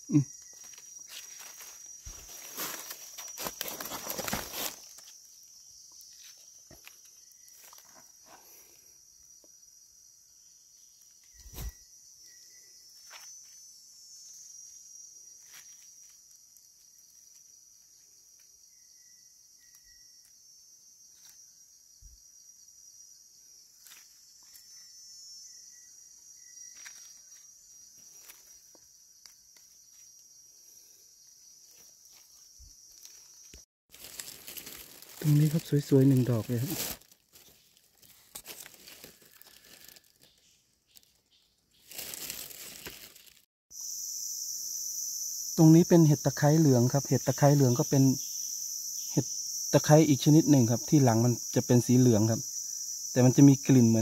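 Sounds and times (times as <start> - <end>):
high-pitched insect drone: 0.0 - 40.4, 43.7 - 54.0
dry leaf litter crackling: 0.5 - 5.2, 32.9 - 41.1, 41.8 - 43.5.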